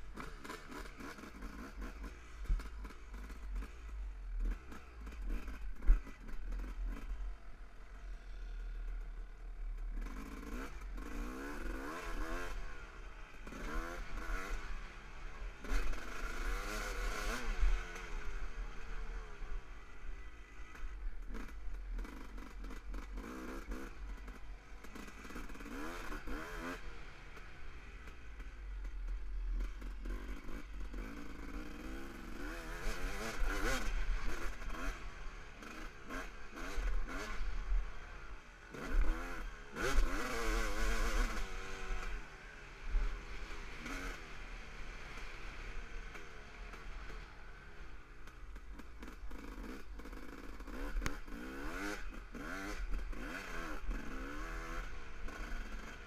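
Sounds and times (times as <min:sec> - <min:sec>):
dirt bike engine revving: 0:09.9 - 0:14.9, 0:15.5 - 0:19.2, 0:20.8 - 0:27.2, 0:29.5 - 0:37.8, 0:38.7 - 0:42.3, 0:48.5 - 0:56.0.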